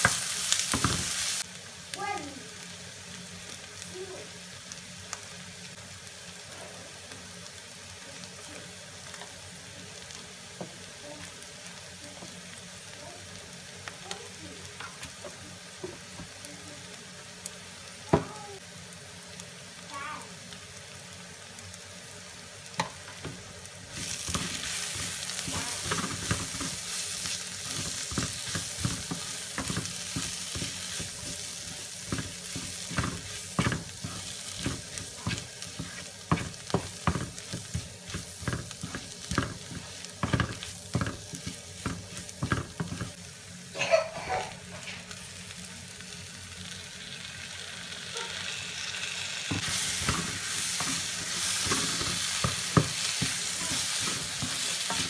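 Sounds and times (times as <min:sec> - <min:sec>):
onions sizzling in a frying pan: 0:00.0 - 0:55.0
spatula scraping a pan: 0:24.0 - 0:43.1, 0:49.6 - 0:55.0.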